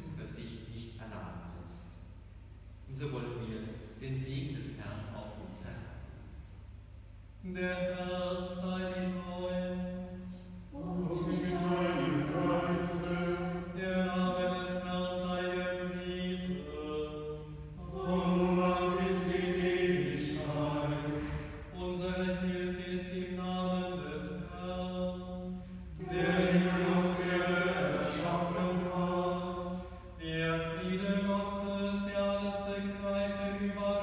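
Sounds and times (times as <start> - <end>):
men chanting: 10.8 - 25.2, 26.0 - 34.0.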